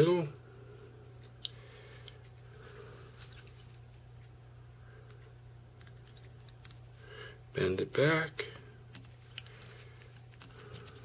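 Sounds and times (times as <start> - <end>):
steady low hum: 0.0 - 11.0
fingers rustling materials: 2.1 - 4.0, 5.8 - 7.0, 8.2 - 11.0.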